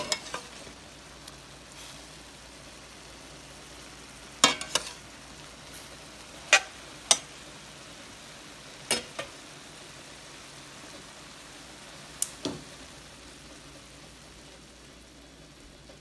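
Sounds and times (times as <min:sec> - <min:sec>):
metal spatula clacking on pan: 0:00.0 - 0:00.6, 0:04.4 - 0:05.0, 0:06.5 - 0:07.3, 0:08.9 - 0:09.3
food sizzling in a pan: 0:00.0 - 0:16.0.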